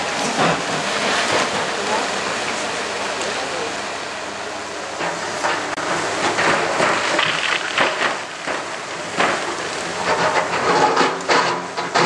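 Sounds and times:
diesel engines running: 0.0s - 12.0s
masonry and rubble falling: 6.4s - 9.6s.

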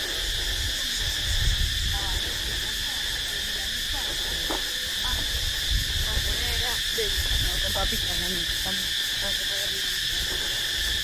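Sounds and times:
insects buzzing chorus: 0.0s - 11.0s.

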